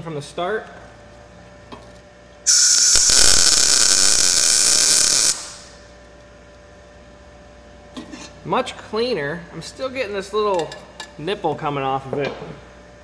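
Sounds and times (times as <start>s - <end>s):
welder arc crackling: 2.5s - 5.8s.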